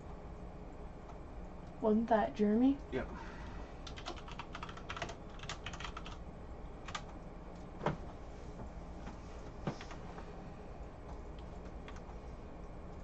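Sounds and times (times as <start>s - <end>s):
typing on computer keyboard: 3.8s - 6.2s, 6.8s - 7.2s.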